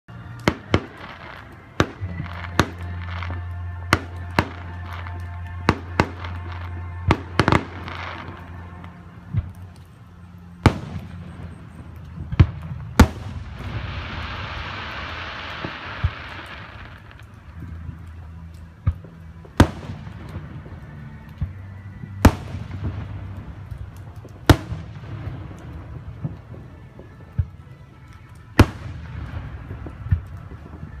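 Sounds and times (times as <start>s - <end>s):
fireworks bangs: 0.4s - 9.8s, 10.6s - 18.2s, 21.4s - 31.0s
dense crackling fizz: 7.6s - 31.0s.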